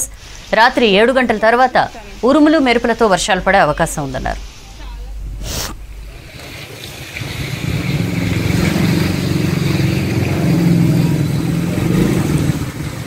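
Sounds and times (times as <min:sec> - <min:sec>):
vehicle engine running: 0:07.1 - 0:13.0.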